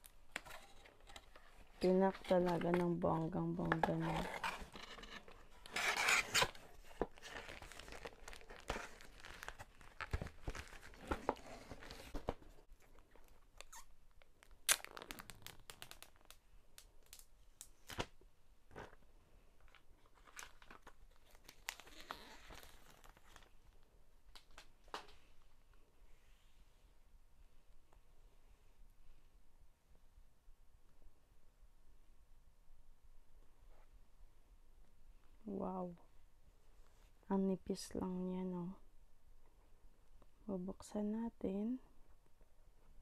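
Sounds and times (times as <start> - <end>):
packaging rustling and tearing: 3.6 - 13.7, 14.4 - 16.4, 19.7 - 23.5.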